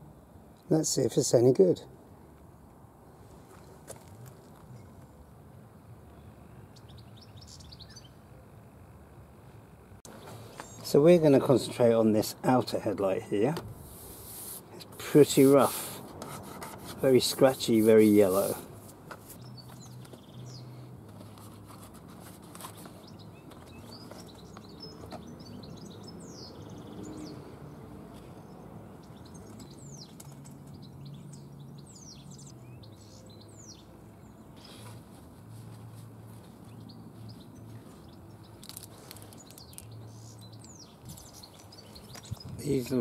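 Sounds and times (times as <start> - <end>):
birds chirping: 6.1 - 8.3, 10.0 - 13.6, 17.0 - 21.9, 22.5 - 35.2, 36.3 - 43.0
cardboard box and bag rustling: 21.1 - 25.3.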